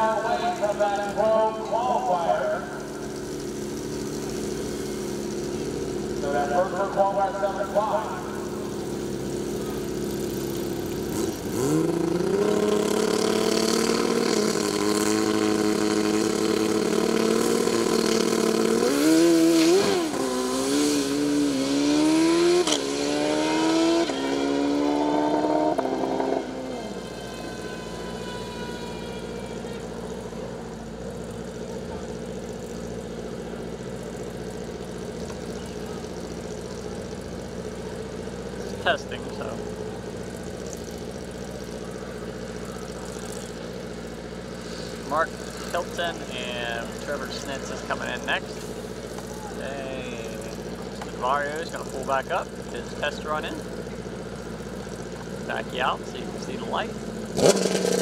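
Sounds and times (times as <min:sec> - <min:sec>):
motorcycle engine revving hard: 0:00.0 - 0:32.8, 0:54.9 - 0:58.0
low steady engine sound: 0:00.0 - 0:58.0.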